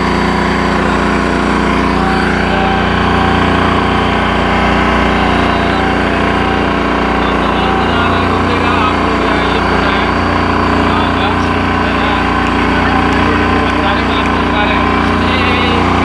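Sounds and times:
motorboat engine running: 0:00.0 - 0:16.0.

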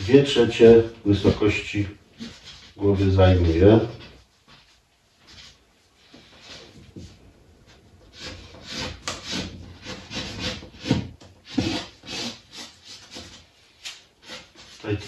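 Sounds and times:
pencil scratching on paper: 0:08.1 - 0:13.5.

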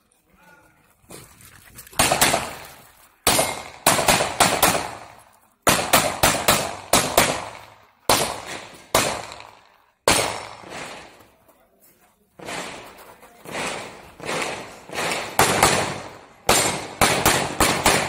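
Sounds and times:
pistol shots with echo: 0:02.0 - 0:02.6, 0:03.3 - 0:11.2, 0:13.5 - 0:18.0.

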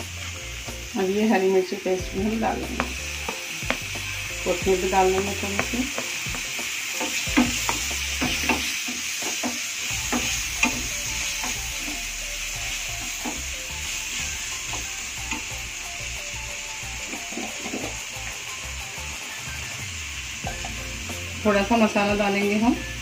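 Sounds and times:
vegetables sizzling in oil: 0:00.0 - 0:23.0
spatula knocking and scraping pan: 0:02.7 - 0:12.0.

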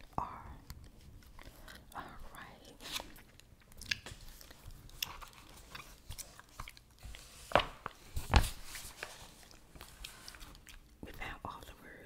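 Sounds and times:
gum chewing: 0:03.1 - 0:07.1, 0:09.5 - 0:11.0
book thumping: 0:07.5 - 0:08.8.

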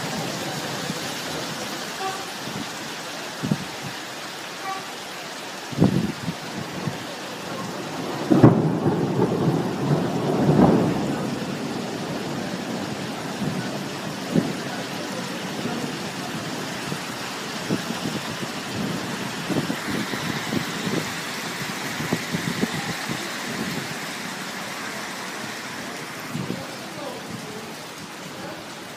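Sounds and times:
heavy rain hiss: 0:00.0 - 0:28.9
thunder clap and rumble: 0:05.8 - 0:24.1
hailstones ticking on hard surfaces: 0:05.8 - 0:28.9.

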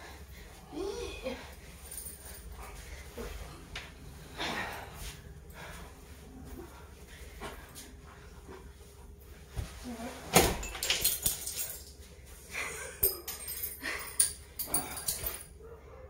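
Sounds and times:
glass bangles jingling: 0:10.6 - 0:12.0, 0:12.8 - 0:15.5.

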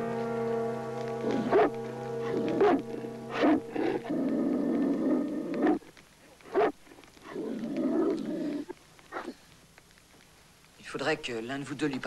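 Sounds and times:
dog growling: 0:01.2 - 0:09.4.

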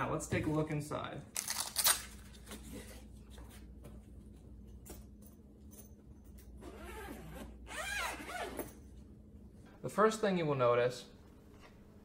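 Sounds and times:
zipper pulled open: 0:06.6 - 0:08.7.

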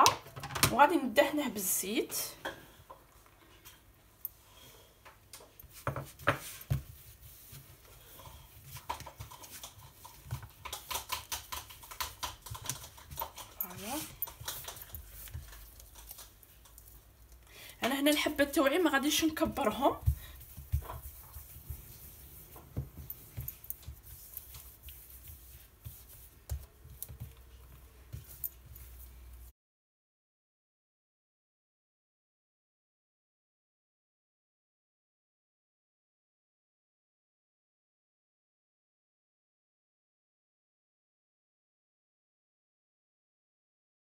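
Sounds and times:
hands rolling dough: 0:02.7 - 0:29.5
hand rubbing oil on tray: 0:18.0 - 0:29.4.

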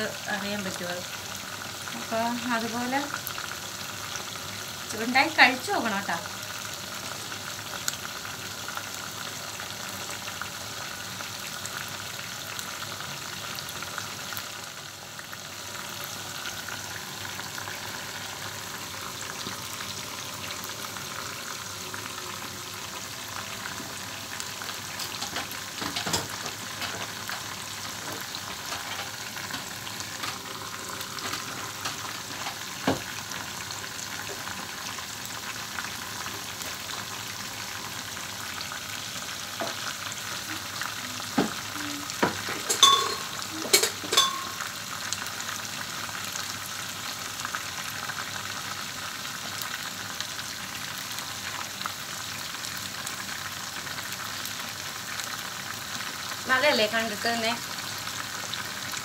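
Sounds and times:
chicken sizzling in hot oil: 0:00.0 - 0:59.0.

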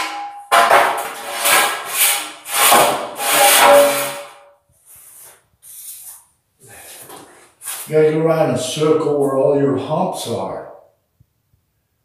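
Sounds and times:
straightedge scraping concrete floor: 0:00.0 - 0:06.3.

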